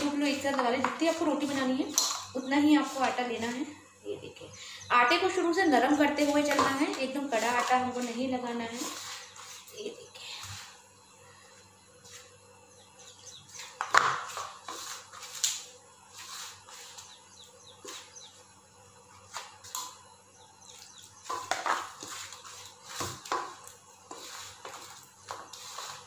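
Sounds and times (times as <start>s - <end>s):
hands mixing dough in metal bowl: 5.9s - 9.9s.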